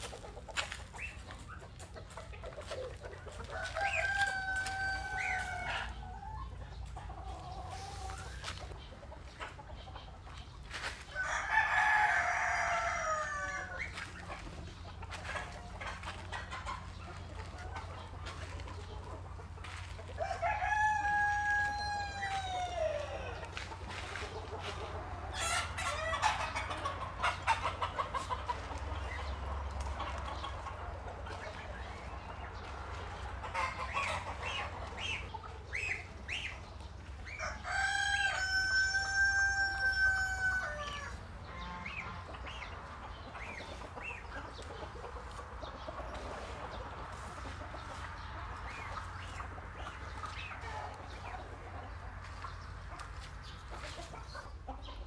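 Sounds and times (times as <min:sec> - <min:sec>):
chickens clucking: 0:00.0 - 0:55.0
rooster crowing: 0:03.5 - 0:06.0, 0:11.2 - 0:13.8, 0:20.2 - 0:23.4, 0:37.3 - 0:41.2.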